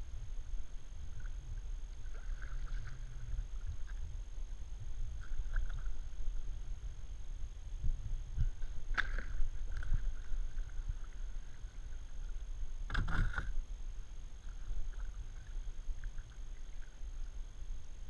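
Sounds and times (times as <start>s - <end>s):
low steady rumble: 0.0s - 18.0s
kayak paddle splashes: 2.0s - 4.0s, 8.5s - 13.6s.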